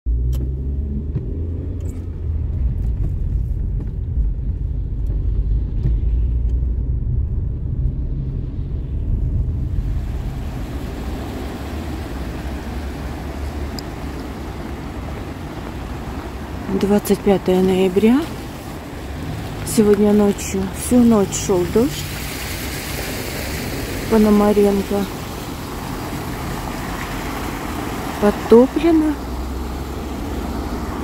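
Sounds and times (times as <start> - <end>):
car rumble on wet road: 0.1 - 31.0
wet road traffic hiss: 9.6 - 31.0.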